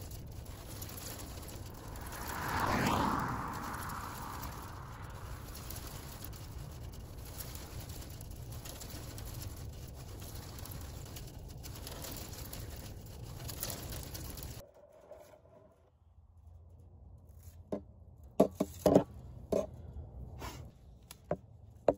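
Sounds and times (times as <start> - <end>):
tyre noise of passing car: 0.0 - 14.6
wind buffeting microphone: 0.0 - 14.6.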